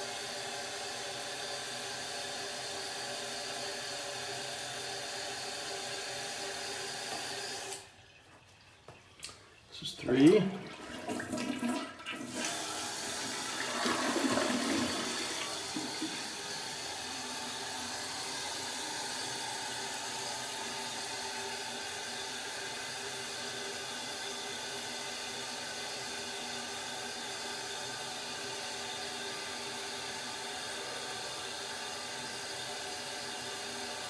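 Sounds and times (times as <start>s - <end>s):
toilet flushing: 0.0s - 34.0s.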